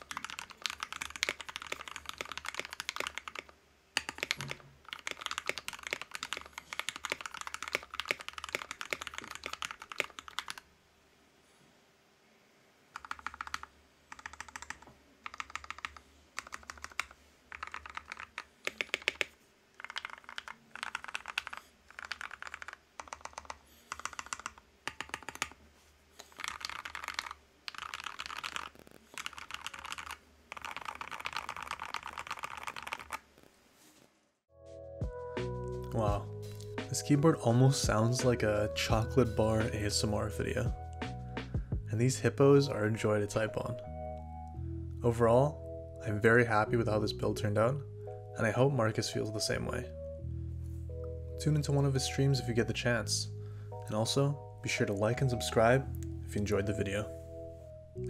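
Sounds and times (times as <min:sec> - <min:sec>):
typing on mechanical keyboard: 0:00.0 - 0:10.6, 0:13.0 - 0:25.6, 0:26.2 - 0:33.2.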